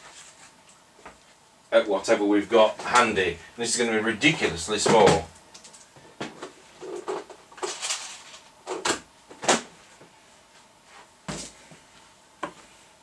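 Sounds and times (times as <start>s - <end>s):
parts clattering and rattling: 6.8s - 9.6s.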